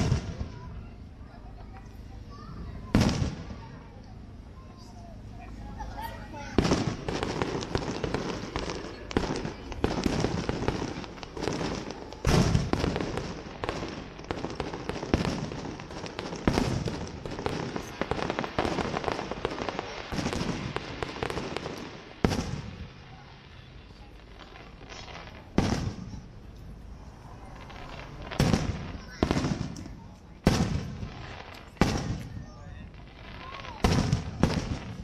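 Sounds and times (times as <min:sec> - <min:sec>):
firework shells bursting: 0:06.5 - 0:22.9.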